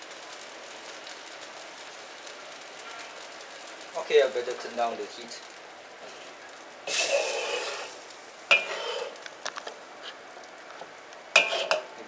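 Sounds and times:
sauce sizzling: 0:00.0 - 0:12.0
metal ladle scraping a wok: 0:06.9 - 0:09.2, 0:11.4 - 0:11.9
ladle striking wok: 0:08.5 - 0:09.2, 0:11.3 - 0:12.0.

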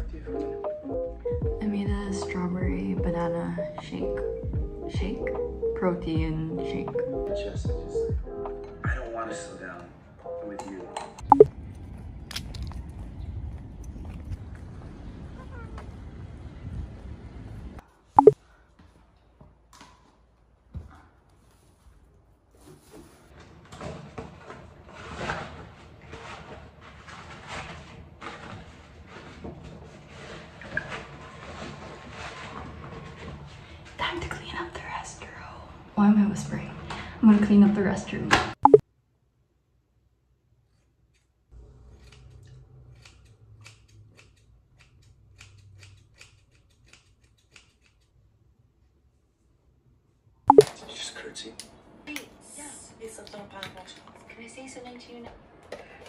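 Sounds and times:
scissors snipping hair: 0:42.0 - 0:48.2.

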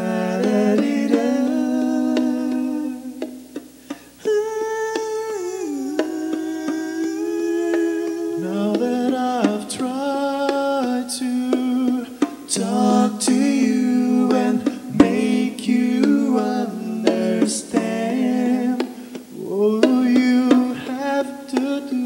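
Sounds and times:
male vocal group humming chords: 0:00.0 - 0:22.0.

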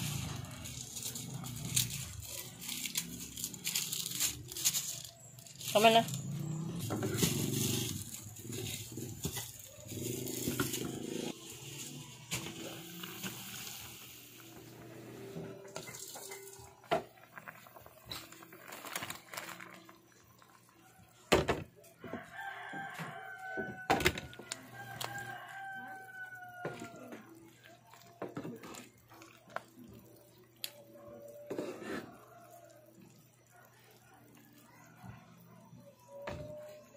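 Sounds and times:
broth boiling in a pan: 0:00.0 - 0:04.1, 0:05.1 - 0:35.2
rooster crowing: 0:22.0 - 0:27.4.

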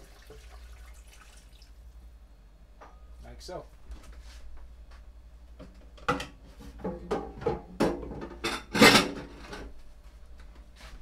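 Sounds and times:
frying pan and spoon clattering: 0:06.0 - 0:09.7.

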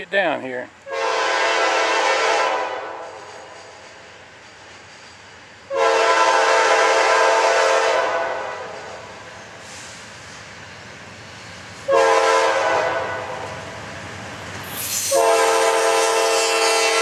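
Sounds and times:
train rumble: 0:00.0 - 0:17.0
locomotive air horn blasts: 0:00.9 - 0:03.6, 0:05.7 - 0:09.0, 0:11.9 - 0:13.4, 0:15.0 - 0:17.0.

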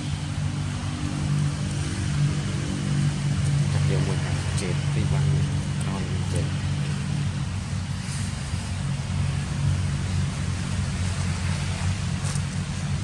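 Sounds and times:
low rumble: 0:00.0 - 0:13.0
even hiss: 0:07.7 - 0:12.8.

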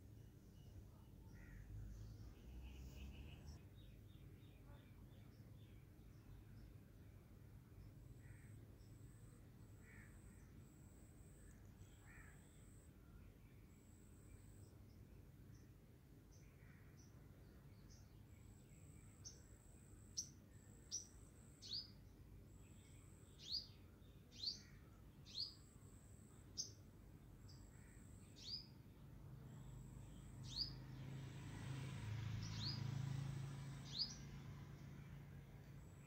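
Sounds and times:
small bird chirping: 0:20.1 - 0:22.0, 0:26.5 - 0:26.8, 0:27.4 - 0:28.8, 0:29.5 - 0:31.0, 0:32.4 - 0:32.9, 0:33.7 - 0:36.0.

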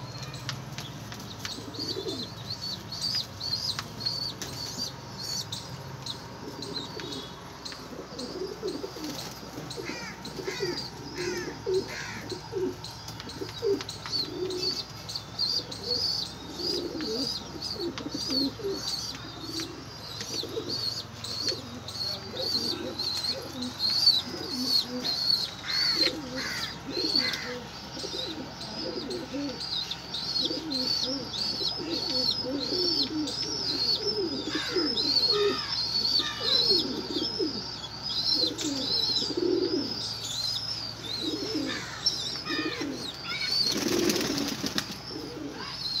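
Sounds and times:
pigeons cooing: 0:01.1 - 0:46.0
wings flapping: 0:43.6 - 0:45.0.

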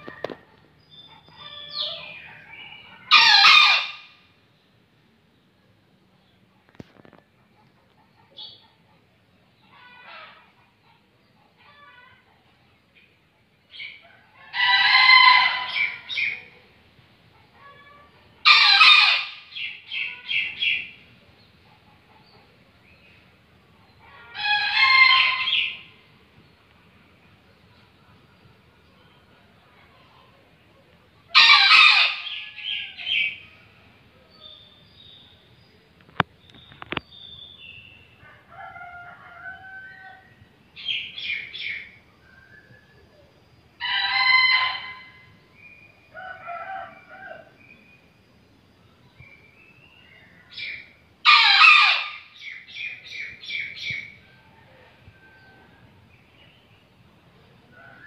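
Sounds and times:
rooster crowing: 0:38.2 - 0:40.4, 0:46.1 - 0:47.7.

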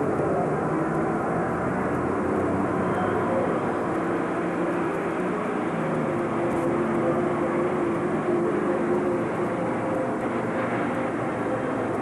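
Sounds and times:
diesel engine droning loudly: 0:00.0 - 0:12.0.

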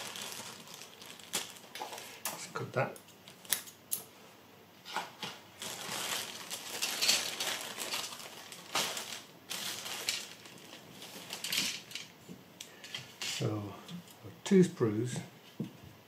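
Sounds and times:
plastic bag crinkling: 0:00.0 - 0:02.2, 0:05.6 - 0:12.2.

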